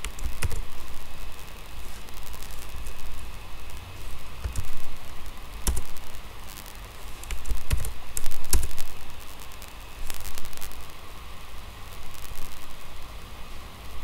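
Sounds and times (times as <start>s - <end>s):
keyboard keys clicking: 0.0s - 0.7s, 4.4s - 4.8s, 5.6s - 6.0s, 7.2s - 8.8s
faint steady hum: 0.0s - 14.0s.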